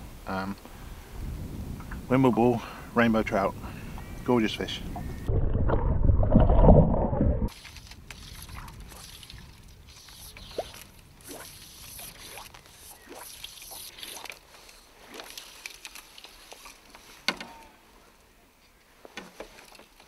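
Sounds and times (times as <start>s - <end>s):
fly line whooshing through air: 7.5s - 15.8s.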